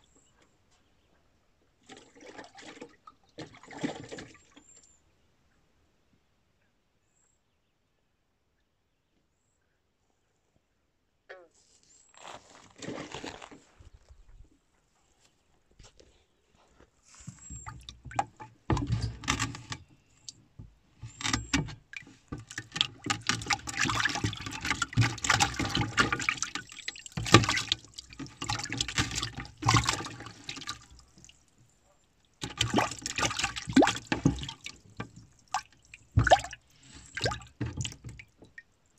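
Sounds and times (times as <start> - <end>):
water splashing in a bucket: 1.8 - 4.8, 17.3 - 38.8.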